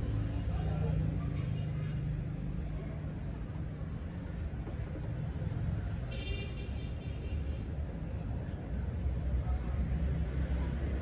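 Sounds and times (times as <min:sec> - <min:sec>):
low engine-like rumble: 0:00.0 - 0:06.1.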